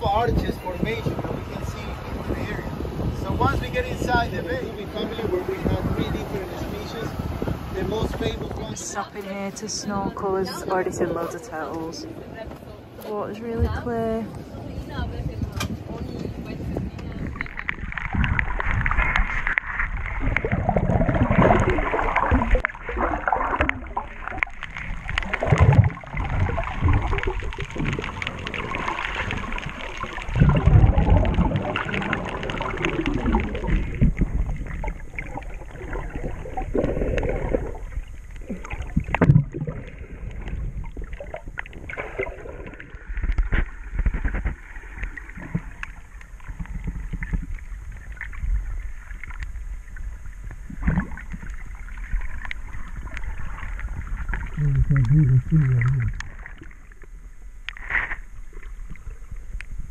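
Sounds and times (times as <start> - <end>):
water sloshing and bubbling underwater: 0.0 - 59.9
low underwater thumps: 16.9 - 48.8, 50.4 - 56.8.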